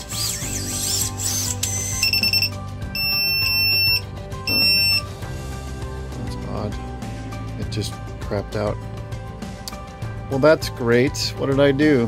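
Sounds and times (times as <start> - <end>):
background music: 0.0 - 12.0
electronic beeps: 1.7 - 5.1.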